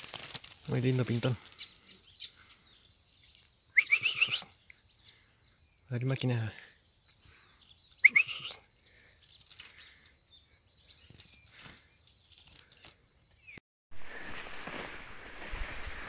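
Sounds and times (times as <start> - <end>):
steady outdoor noise: 0.0 - 13.6
bird chirps: 0.8 - 13.6
wire cage rattling: 1.2 - 8.1.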